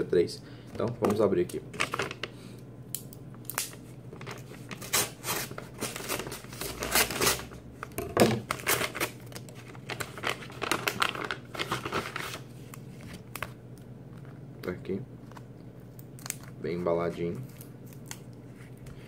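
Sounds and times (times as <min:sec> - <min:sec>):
paper crinkling and tearing: 0:00.8 - 0:02.3, 0:03.6 - 0:07.6, 0:08.4 - 0:13.5.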